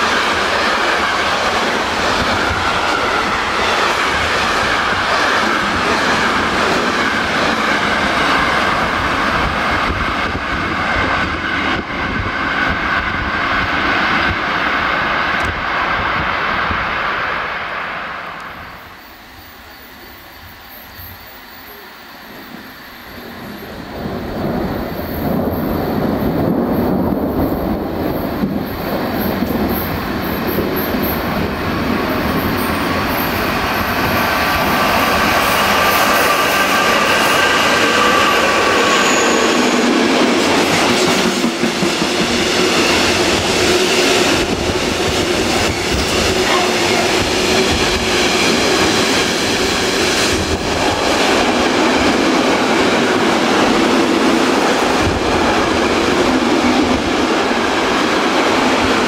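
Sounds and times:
train wheel squeal: 18.4s - 56.8s
freight train wheels clattering: 24.4s - 59.0s.

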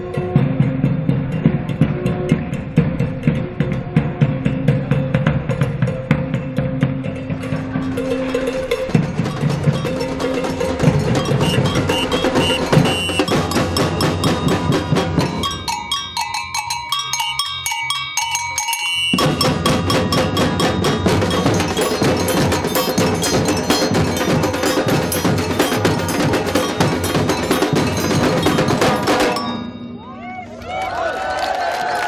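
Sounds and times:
street drums playing fast rhythm: 0.0s - 30.0s
ringing bell-like metal notes: 5.9s - 30.6s.

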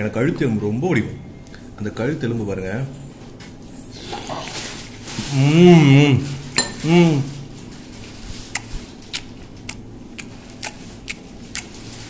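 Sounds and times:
man humming: 5.2s - 7.5s.

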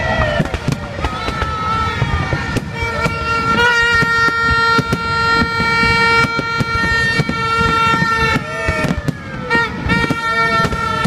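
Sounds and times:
fireworks banging and crackling: 0.0s - 11.0s
horn long steady note: 0.0s - 11.0s.

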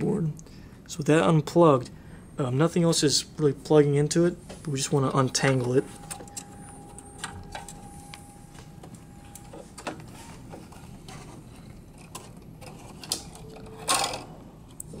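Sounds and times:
faint steady tone: 4.4s - 10.3s.

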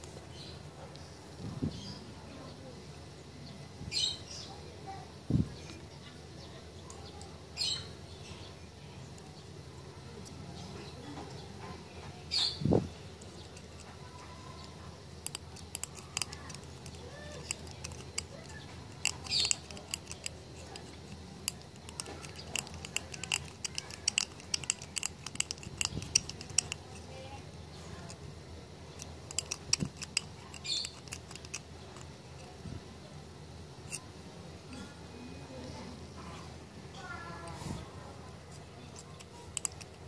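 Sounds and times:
metallic clicks and ticks: 13.2s - 27.1s, 28.9s - 32.6s, 39.0s - 40.0s.

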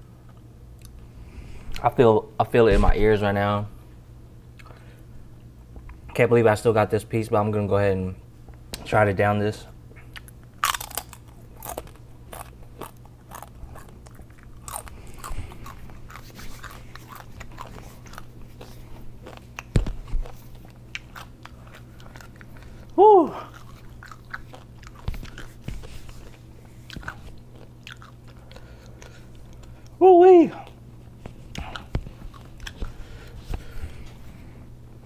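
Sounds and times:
chip crunching: 10.1s - 30.0s.

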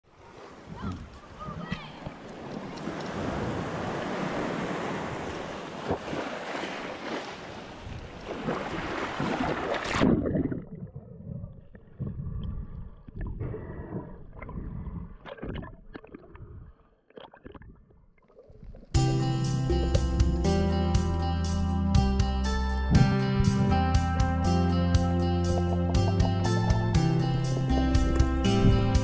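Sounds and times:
water splashing at shoreline: 0.0s - 11.0s
underwater bubbling: 0.3s - 19.0s
low underwater rumble: 7.9s - 19.0s.

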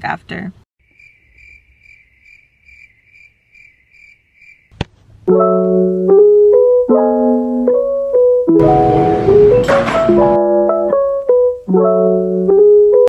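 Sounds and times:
cricket chirping: 0.8s - 4.8s
electric piano music: 5.3s - 13.0s.

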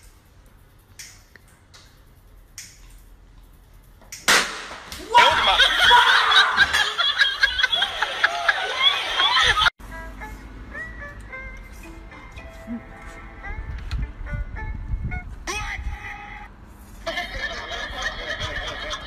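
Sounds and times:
loud smack: 4.2s - 5.1s
people shouting excitedly: 5.0s - 6.7s
people laughing: 5.1s - 9.7s, 17.0s - 19.0s.

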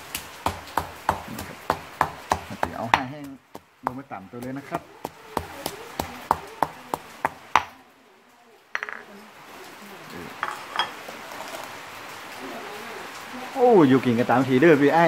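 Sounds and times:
stone pestle pounding in mortar: 0.4s - 7.7s
plates and bowls clinking: 8.8s - 9.1s, 10.4s - 11.6s.

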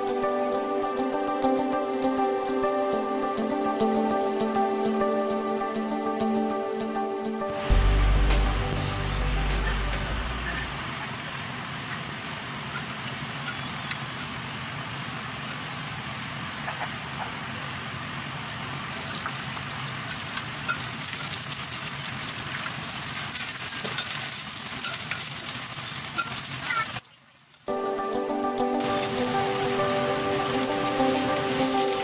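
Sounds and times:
food frying in oil: 9.0s - 27.7s, 28.8s - 32.0s.

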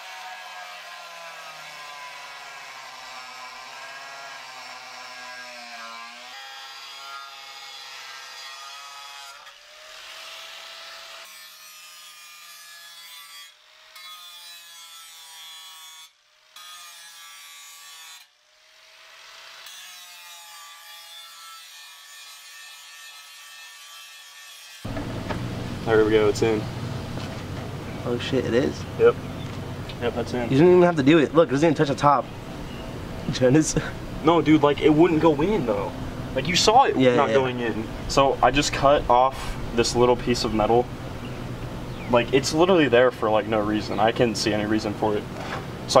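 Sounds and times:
angle grinder cutting metal: 0.0s - 26.6s.

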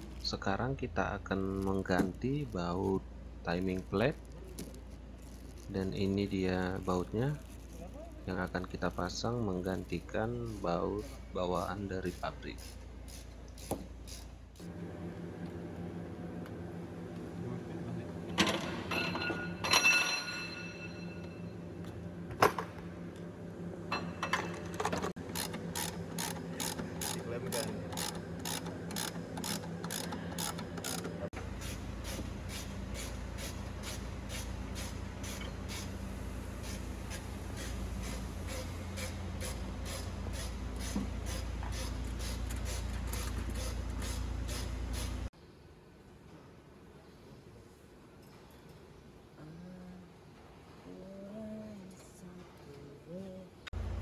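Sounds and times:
ratchet wrench clicking: 25.3s - 31.1s.

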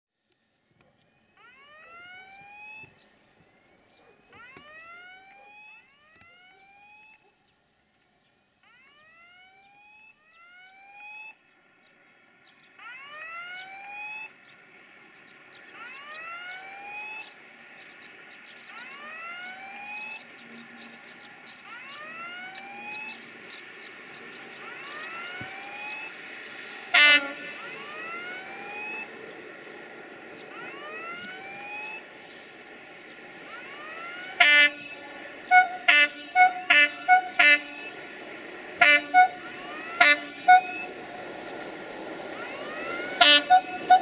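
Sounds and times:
level crossing warning whoop tone: 24.6s - 26.2s, 27.0s - 29.1s, 30.5s - 32.0s, 38.8s - 41.1s, 42.4s - 44.0s.

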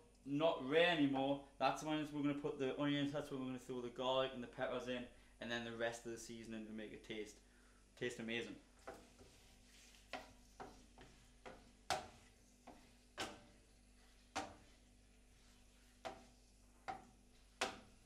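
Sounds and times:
wooden spatula knocking on a pan: 10.1s - 13.6s, 14.3s - 14.8s, 16.0s - 18.0s.

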